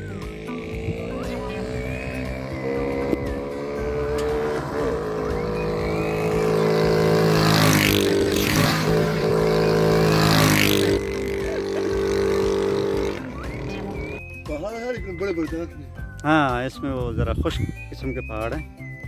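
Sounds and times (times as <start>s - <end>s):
motorcycle passing: 0.0s - 14.2s
steady engine hum: 0.0s - 14.2s.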